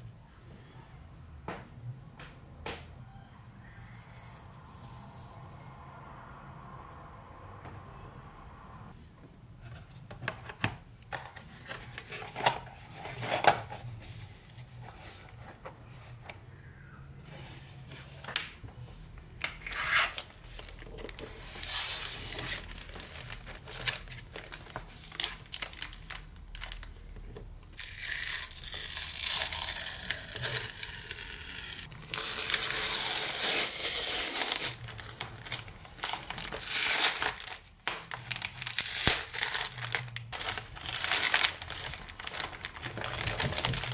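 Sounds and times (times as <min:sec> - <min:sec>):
plastic wrap crinkling: 0:19.6 - 0:27.1, 0:27.8 - 0:43.9
packing tape tearing: 0:27.8 - 0:43.9.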